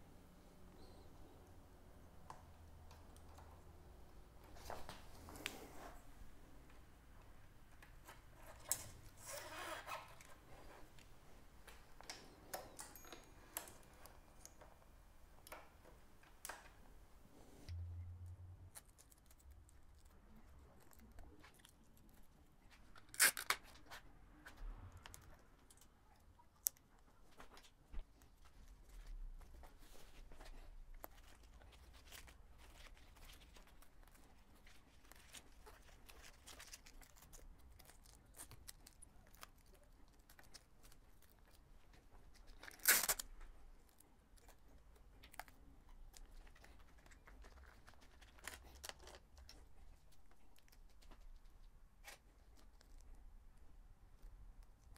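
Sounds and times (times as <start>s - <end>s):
tape rustling and crinkling: 2.3s - 16.8s, 18.6s - 54.9s
backing film ripping off: 23.1s - 23.7s, 42.6s - 43.3s.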